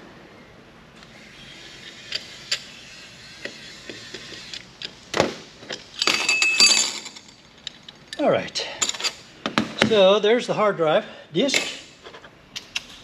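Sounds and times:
metal parts clicking and clinking: 0:05.6 - 0:09.2.

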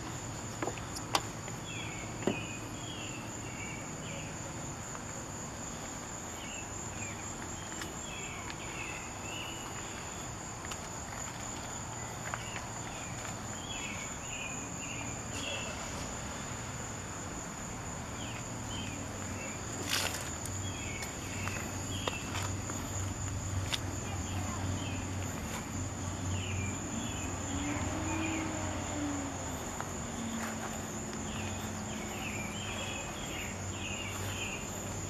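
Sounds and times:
high-pitched insect drone: 0:24.0 - 0:35.0.

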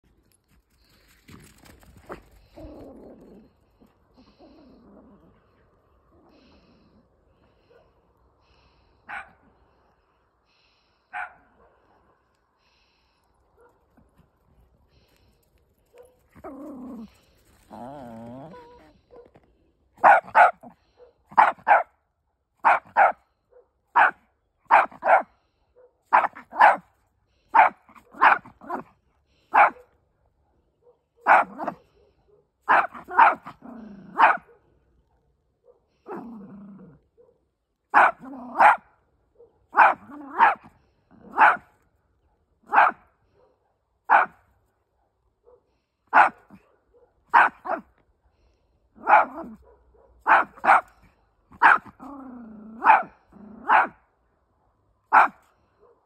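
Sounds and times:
small dog barking sharply: 0:09.1 - 0:09.4, 0:11.1 - 0:11.5, 0:20.0 - 0:20.7, 0:21.3 - 0:21.9, 0:22.6 - 0:23.2, 0:24.0 - 0:25.3, 0:26.1 - 0:26.9, 0:27.6 - 0:28.8, 0:31.2 - 0:31.8, 0:32.7 - 0:33.5, 0:34.2 - 0:34.5, 0:37.9 - 0:38.8, 0:39.7 - 0:40.7, 0:41.3 - 0:41.7, 0:42.6 - 0:43.1, 0:44.1 - 0:44.4, 0:46.1 - 0:46.6, 0:47.3 - 0:47.9, 0:49.0 - 0:52.0, 0:52.8 - 0:54.0, 0:55.1 - 0:55.4.

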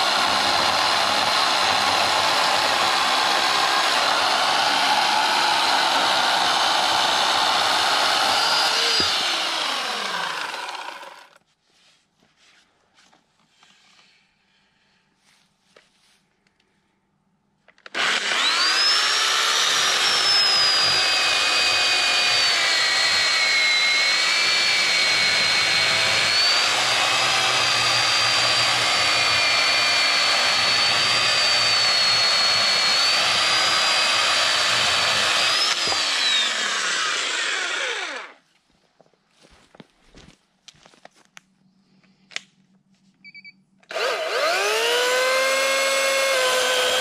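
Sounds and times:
electric chainsaw cutting log: 0:00.0 - 0:11.4, 0:17.9 - 0:38.4, 0:43.9 - 0:47.0.

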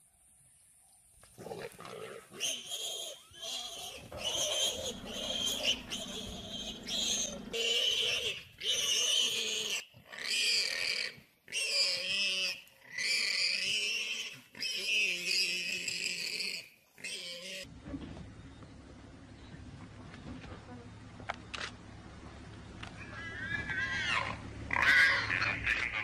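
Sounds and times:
warthog squealing: 0:02.1 - 0:17.7, 0:23.0 - 0:26.0.

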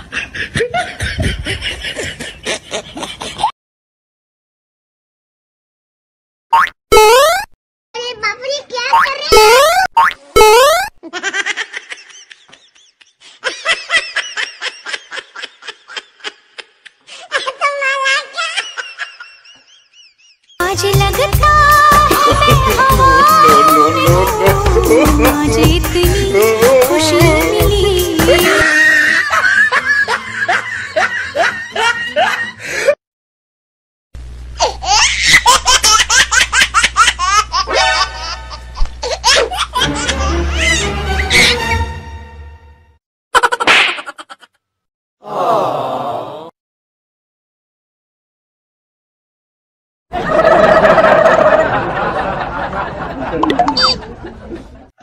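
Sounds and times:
high-pitched giggling laughter: 0:00.0 - 0:03.5, 0:09.3 - 0:20.3, 0:22.1 - 0:25.5, 0:28.1 - 0:32.6, 0:34.6 - 0:41.6, 0:43.4 - 0:44.6, 0:53.2 - 0:54.8
laughter in short bursts: 0:28.3 - 0:29.4.

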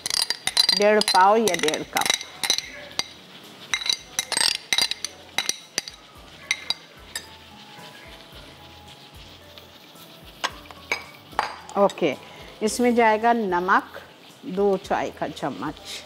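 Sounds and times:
spoon clinking against a bowl: 0:00.0 - 0:08.0, 0:10.4 - 0:12.0.

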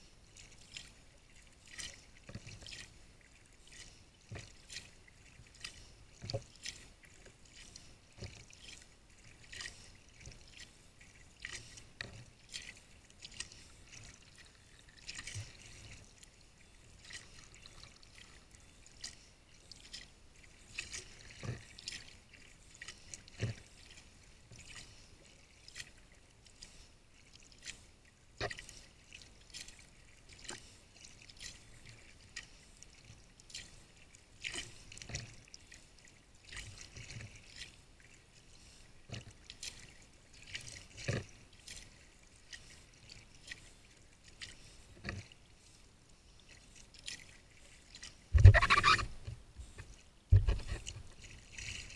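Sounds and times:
paddle splashing into water: 0:48.4 - 0:51.7.

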